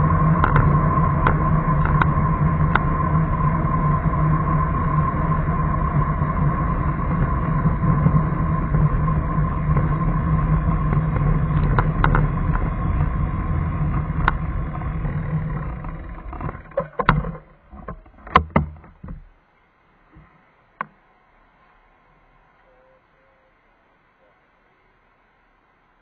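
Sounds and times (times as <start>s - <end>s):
vehicle running rumble and hum: 0.0s - 19.4s
sharp clicks and knocks: 0.4s - 2.9s, 10.9s - 13.2s, 13.8s - 19.3s.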